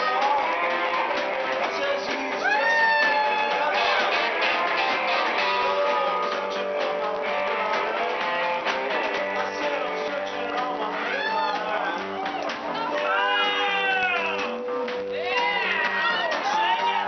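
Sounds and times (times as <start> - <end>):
drums: 0.0 - 17.0
electric guitars: 0.0 - 17.0
live band playing: 0.0 - 17.0.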